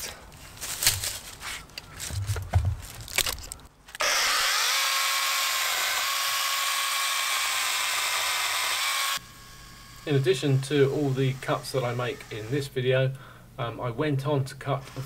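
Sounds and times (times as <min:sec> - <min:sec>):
electric chainsaw running: 0:04.0 - 0:12.7.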